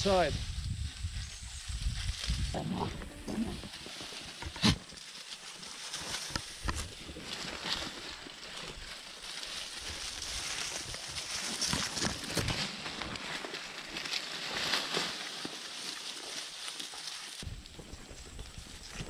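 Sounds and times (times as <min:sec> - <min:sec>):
leaves rustling: 0:00.0 - 0:19.0
goats chewing: 0:01.8 - 0:19.0
twigs clicking and cracking: 0:03.6 - 0:17.5.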